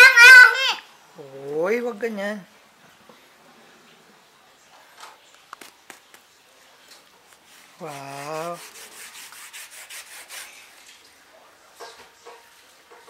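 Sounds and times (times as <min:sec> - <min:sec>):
brush scrubbing on paper: 0:07.3 - 0:10.9.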